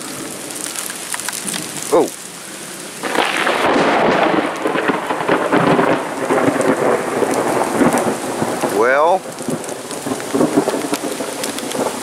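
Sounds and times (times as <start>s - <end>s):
steady rain: 0.0s - 12.0s
thunderclap with crackling rumble: 3.0s - 12.0s.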